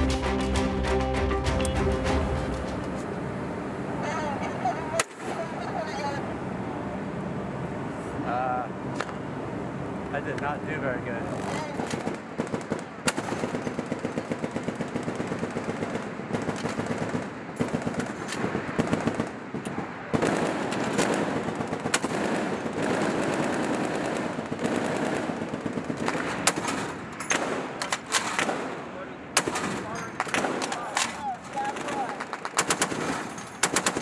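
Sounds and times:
machine gun firing bursts: 0:11.4 - 0:28.7, 0:31.7 - 0:34.0.

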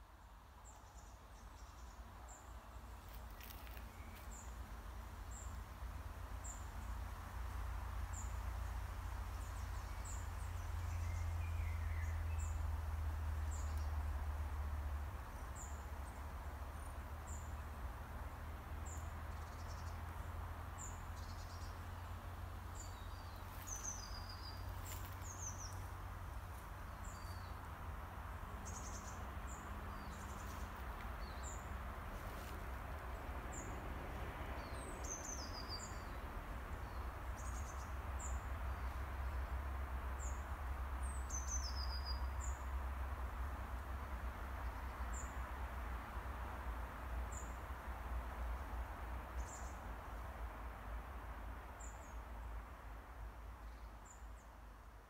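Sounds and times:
road traffic hum: 0:00.0 - 0:55.0
songbirds chirping: 0:00.0 - 0:55.0.

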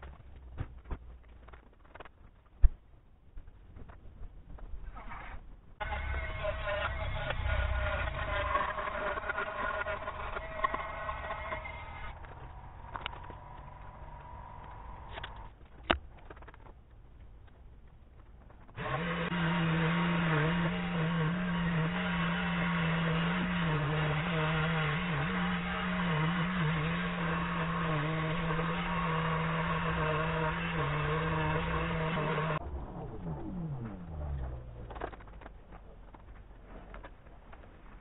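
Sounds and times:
power tool humming: 0:05.8 - 0:13.4, 0:18.8 - 0:32.6.

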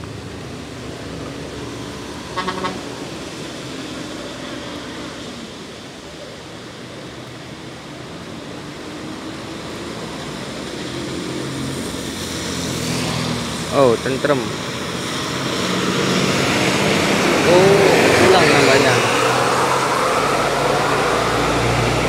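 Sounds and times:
bus engine: 0:00.0 - 0:22.0
heavy rain on wet road: 0:00.0 - 0:22.0
motorcycle: 0:00.0 - 0:22.0.

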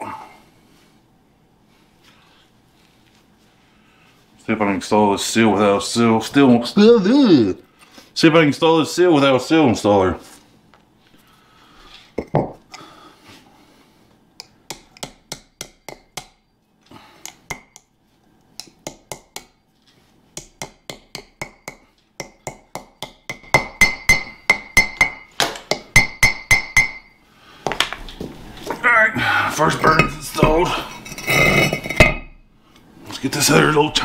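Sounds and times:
hammer tapping on metal: 0:14.4 - 0:16.4, 0:18.6 - 0:19.6, 0:20.4 - 0:27.2.

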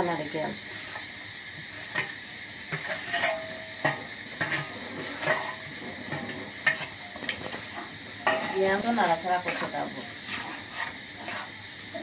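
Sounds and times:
metal spatula clinking on steel plate: 0:02.8 - 0:07.0, 0:08.2 - 0:11.5.

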